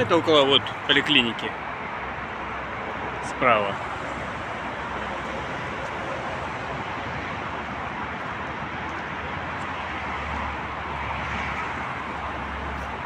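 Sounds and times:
traffic running past: 0:00.0 - 0:13.0.

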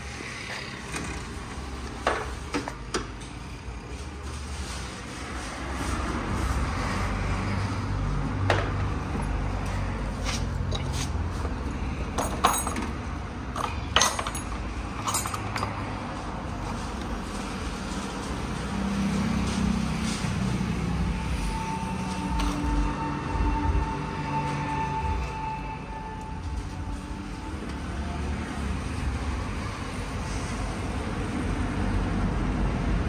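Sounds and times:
hand tools clinking on metal: 0:12.2 - 0:16.0.

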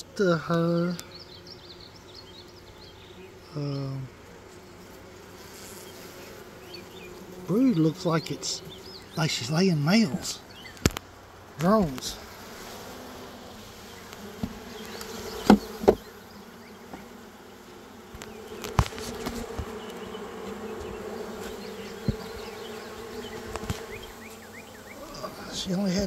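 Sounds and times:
honeybees buzzing: 0:00.0 - 0:26.0
sharp knocks: 0:15.4 - 0:16.1.

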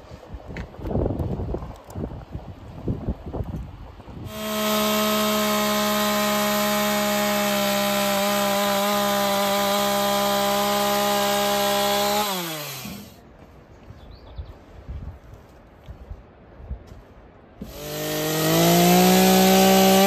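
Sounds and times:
chainsaw cutting wood: 0:04.3 - 0:13.2, 0:17.6 - 0:20.0.

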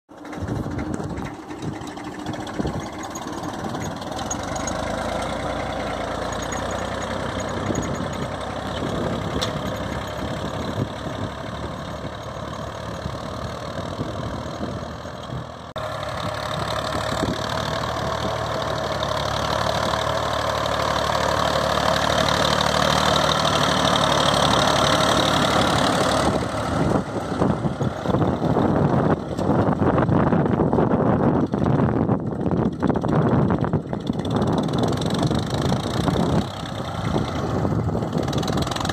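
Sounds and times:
tractor diesel engine running: 0:00.1 - 0:38.9.

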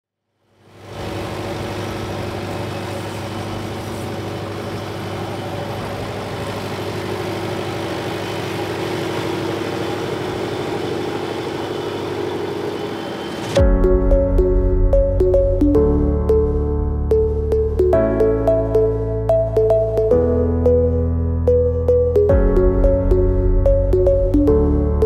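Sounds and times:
tractor diesel engine passing: 0:00.6 - 0:13.6.

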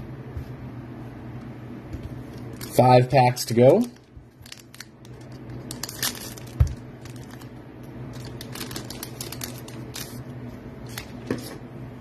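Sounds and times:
foil wrapper crinkling: 0:02.5 - 0:07.5, 0:08.1 - 0:11.2.

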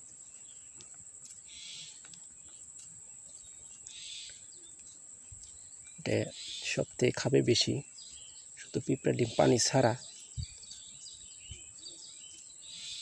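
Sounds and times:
high-pitched insect buzz: 0:01.2 - 0:02.1, 0:02.8 - 0:07.0.

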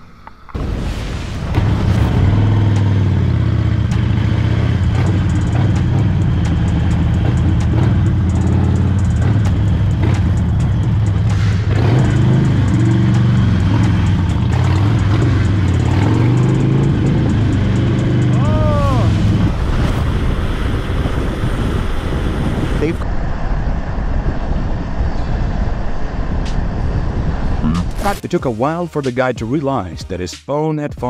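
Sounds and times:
motorcycle engine running: 0:01.5 - 0:23.0.

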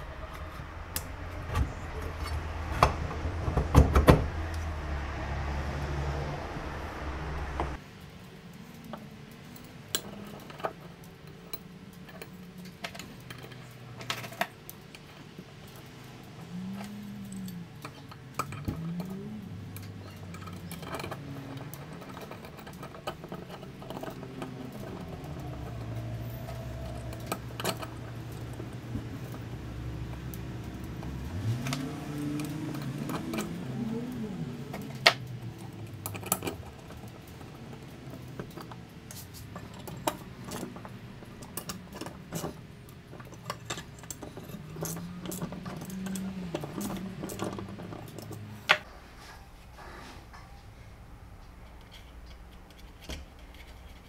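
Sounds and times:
low hum rising and falling: 0:00.0 - 0:07.8.

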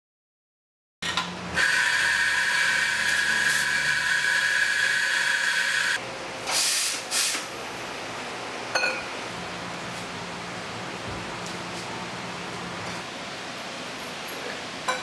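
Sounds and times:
short bursts of steam: 0:06.5 - 0:07.5.

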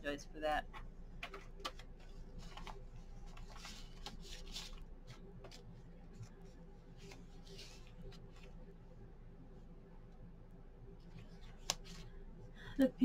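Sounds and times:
paper rustling and sliding: 0:01.3 - 0:08.6.

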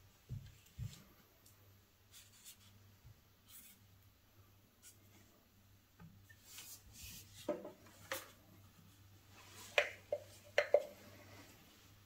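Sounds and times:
soft rubbing of glove: 0:02.0 - 0:04.0, 0:06.3 - 0:12.0.

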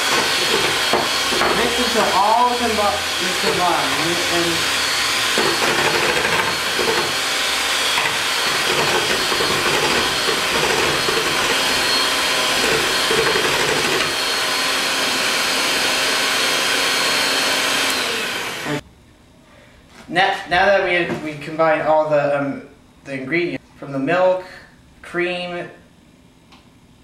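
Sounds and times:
electric hand mixer whine: 0:00.0 - 0:18.8.

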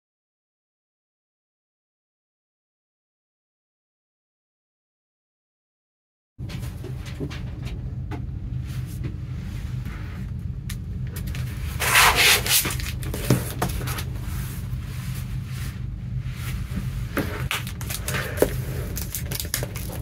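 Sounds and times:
low hum: 0:06.4 - 0:20.0
plastic sleeve crinkling: 0:11.2 - 0:14.2, 0:17.2 - 0:20.0.

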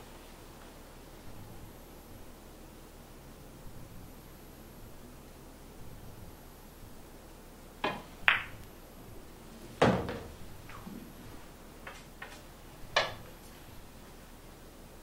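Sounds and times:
ball dropping into pocket: 0:07.8 - 0:08.7
cue tip striking ball: 0:07.8 - 0:08.7, 0:09.8 - 0:11.1, 0:11.8 - 0:13.3
light knocks of balls: 0:07.8 - 0:08.7, 0:11.8 - 0:13.4
pool balls clicking: 0:07.8 - 0:08.8, 0:09.8 - 0:11.2, 0:11.8 - 0:13.6.

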